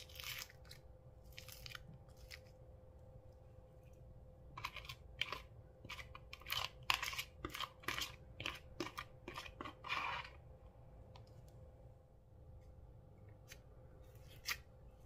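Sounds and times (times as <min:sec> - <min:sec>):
slime crunching and squishing: 0:00.0 - 0:02.6
plastic spoon scraping tub: 0:04.6 - 0:10.5.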